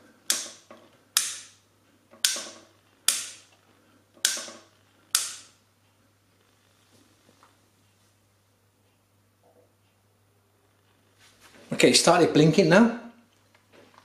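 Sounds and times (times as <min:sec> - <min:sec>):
light switch clicking: 0:02.2 - 0:02.5, 0:05.1 - 0:05.5.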